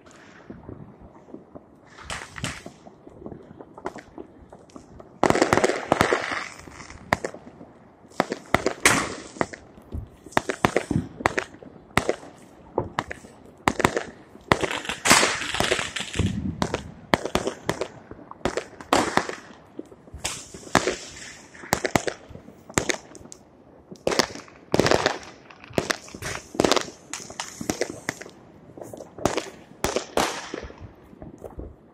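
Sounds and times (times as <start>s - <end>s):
fireworks crackling: 0.0s - 31.9s
fireworks bangs: 1.5s - 31.9s.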